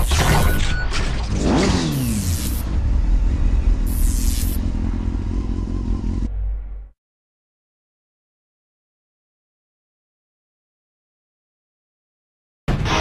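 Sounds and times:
engine rev falling in pitch: 1.3s - 7.0s
steady low rumble: 2.2s - 7.0s.

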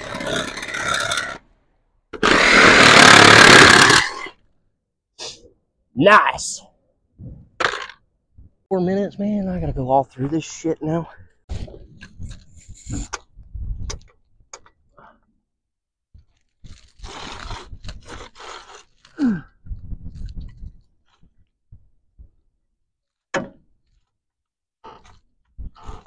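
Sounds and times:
gravel crunching and scraping: 0.0s - 1.6s, 16.2s - 21.9s
person grunting: 19.2s - 19.5s.

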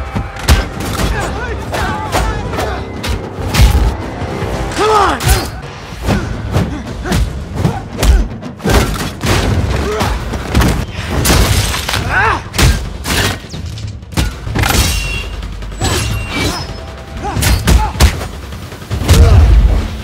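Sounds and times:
orchestral score: 0.0s - 11.2s.

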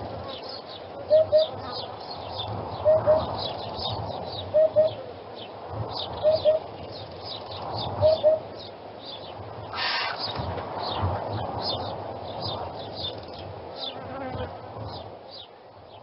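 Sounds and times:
small birds chirping faintly: 0.0s - 16.0s
hoopoe calling hoop-hoop: 1.0s - 1.8s, 2.8s - 3.3s, 4.5s - 5.1s, 6.2s - 6.7s, 8.0s - 8.6s.

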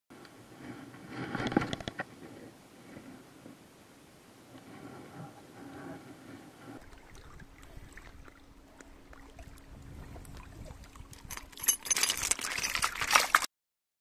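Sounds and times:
faint steady hum: 0.1s - 13.0s
crackling and scraping: 0.2s - 3.6s, 9.8s - 13.5s
waves lapping over pebbles: 6.8s - 13.5s.

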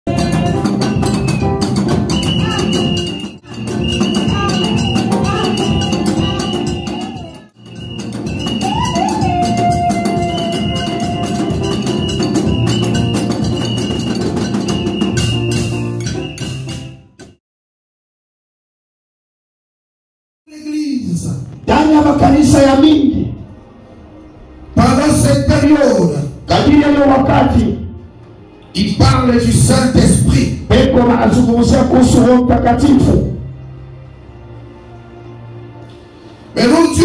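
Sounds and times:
drum and percussion rhythm: 0.1s - 17.4s, 29.0s - 33.1s
woman singing into microphone: 3.5s - 7.5s, 8.6s - 11.4s.

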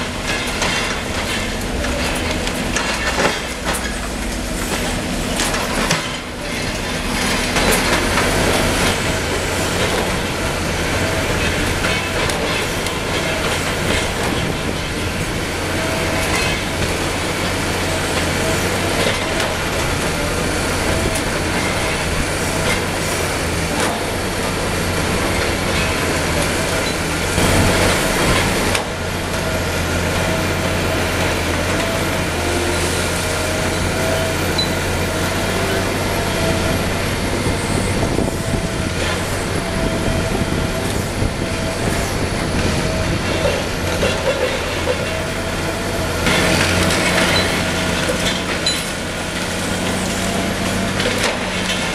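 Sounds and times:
concrete rubble clanking and crashing: 0.0s - 32.4s, 35.9s - 51.9s
excavator diesel engine: 0.0s - 51.9s.

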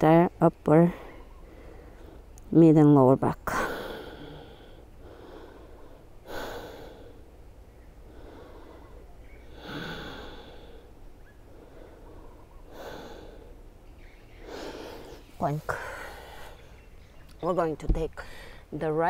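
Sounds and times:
person breathing through nose: 8.1s - 10.9s, 11.5s - 13.6s.

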